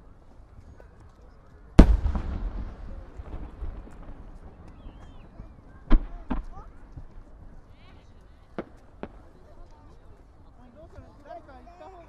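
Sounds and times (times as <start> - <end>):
faint firework crackles: 0.0 - 12.0
firework boom: 1.8 - 6.6
low rumbling echo: 1.8 - 7.3.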